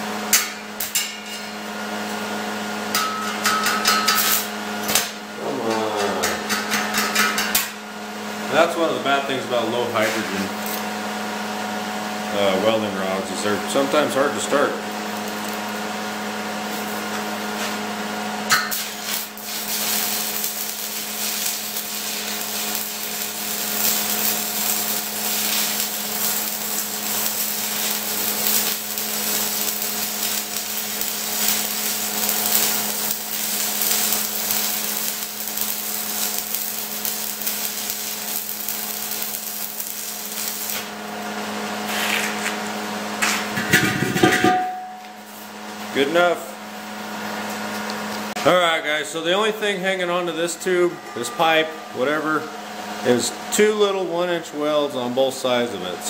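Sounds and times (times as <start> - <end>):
welding arc crackling and hissing: 0.0 - 5.3, 12.4 - 43.6
electrical hum: 0.0 - 56.0.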